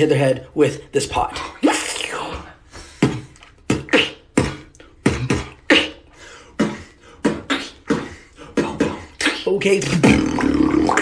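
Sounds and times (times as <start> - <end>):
beatboxing vocal drum hits: 1.7 - 6.0, 6.6 - 11.0.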